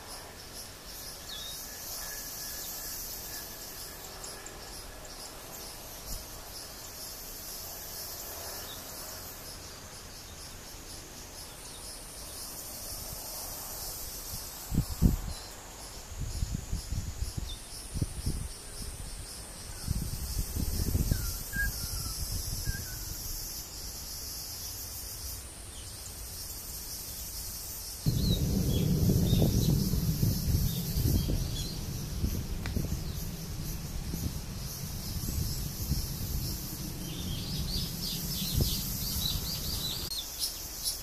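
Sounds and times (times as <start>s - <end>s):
insects chorus: 0.0s - 41.0s
loud low thumps: 28.1s - 40.1s.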